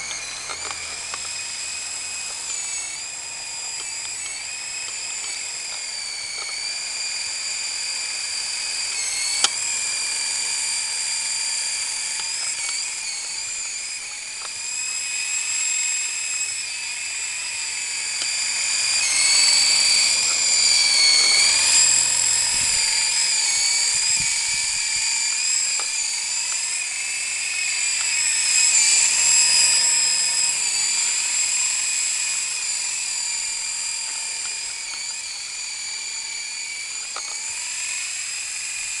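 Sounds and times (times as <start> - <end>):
toy helicopter rotors whining: 0.0 - 39.0
sharp click: 9.0 - 9.6.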